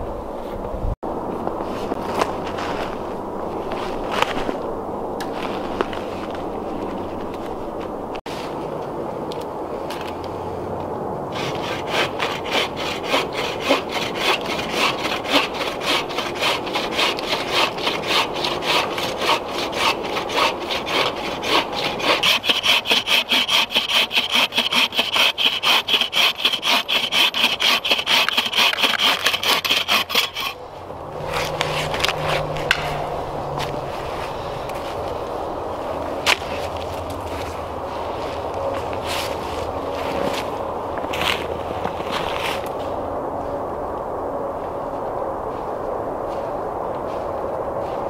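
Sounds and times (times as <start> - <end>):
saw cutting through log: 11.3 - 30.6, 31.3 - 32.9.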